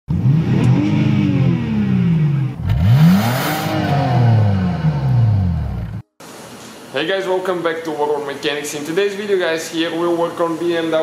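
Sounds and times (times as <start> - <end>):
car engine revving: 0.1 - 6.0.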